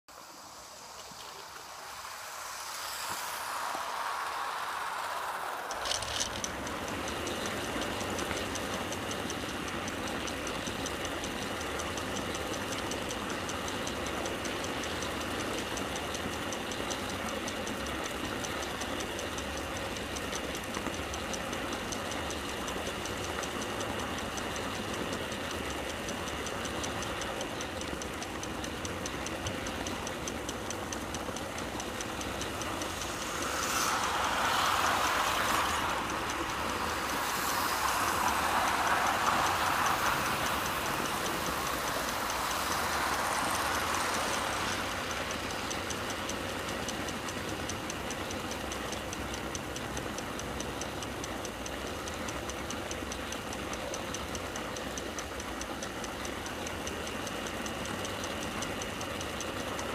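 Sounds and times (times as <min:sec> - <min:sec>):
faint regular clicks: 0:00.0 - 0:59.9
hiss: 0:00.1 - 0:09.1, 0:32.2 - 0:46.1
model train rumbling on track: 0:02.0 - 0:48.7.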